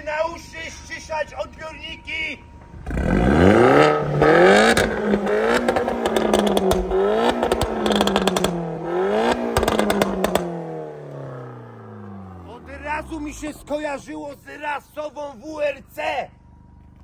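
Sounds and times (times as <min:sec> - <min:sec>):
exhaust crackles: 0:02.5 - 0:17.0
car engine revving: 0:02.7 - 0:14.9.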